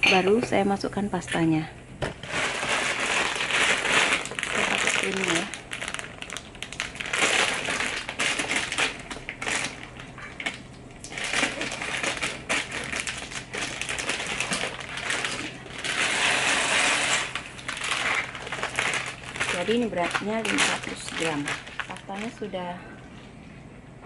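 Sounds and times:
pasta rattling in bag: 2.2 - 22.5
plastic bag crinkling: 2.2 - 22.7
pasta pouring into pot: 11.1 - 22.3.

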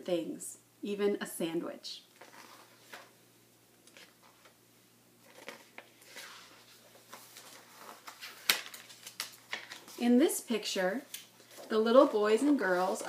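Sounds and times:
paper rustling: 2.2 - 3.1, 5.2 - 10.0
page snapping: 7.4 - 9.8.

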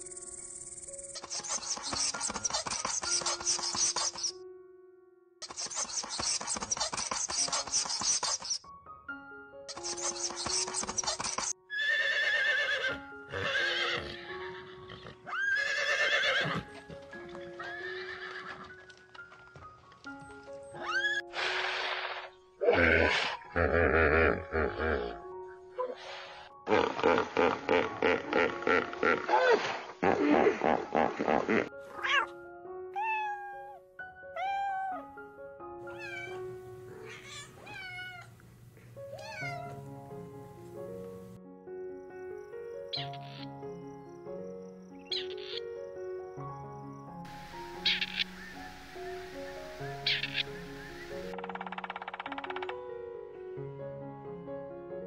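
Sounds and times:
background music of sustained notes: 0.0 - 55.0
scratchy hiss: 1.2 - 4.3, 5.4 - 8.6, 9.7 - 11.5, 47.3 - 51.3
horses neighing: 11.7 - 16.8, 17.4 - 18.8
cat meowing: 32.0 - 32.4, 33.0 - 33.8, 34.4 - 35.1, 35.9 - 36.4, 37.0 - 38.3, 39.2 - 39.8.

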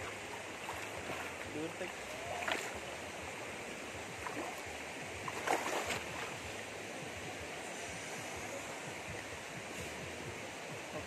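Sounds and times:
feet splashing through water: 0.0 - 2.9, 4.2 - 6.4
shallow stream running: 0.0 - 11.0.

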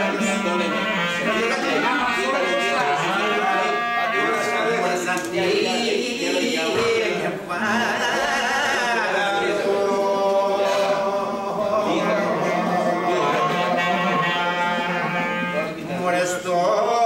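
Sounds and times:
clarinet: 0.0 - 5.1, 11.8 - 16.0
man singing: 0.0 - 17.0.

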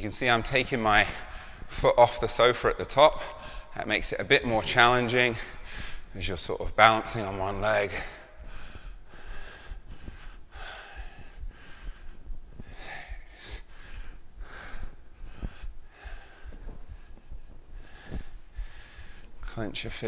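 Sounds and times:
man breathing hard: 1.1 - 1.7, 3.2 - 3.8, 5.3 - 6.2, 7.8 - 19.4.

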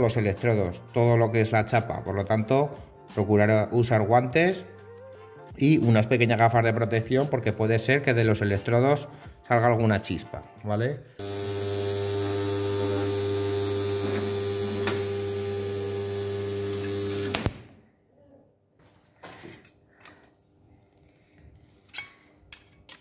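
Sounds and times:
sharp electrical crackle: 16.6 - 17.7.

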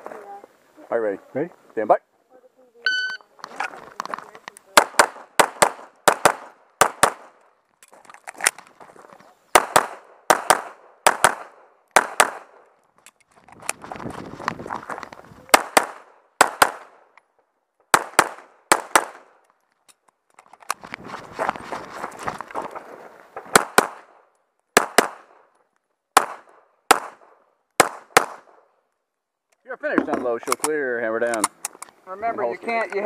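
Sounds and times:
scuffing and rustling: 7.9 - 9.4, 13.3 - 15.5, 20.4 - 23.5.

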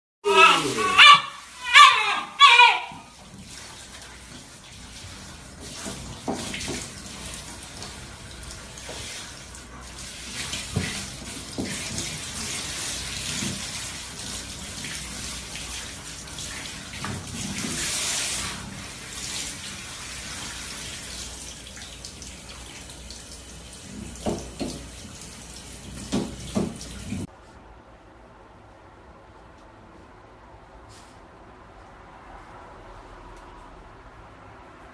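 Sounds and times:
shower water spraying: 0.3 - 27.3.

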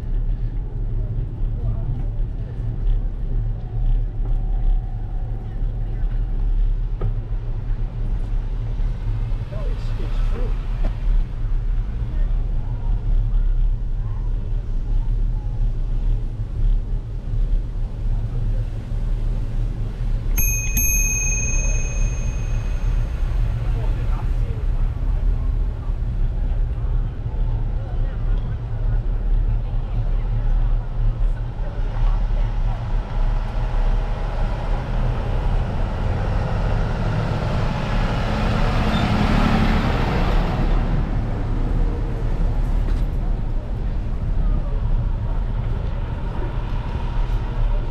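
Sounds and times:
bicycle bell ringing: 20.4 - 23.3
truck passing: 32.8 - 44.1.

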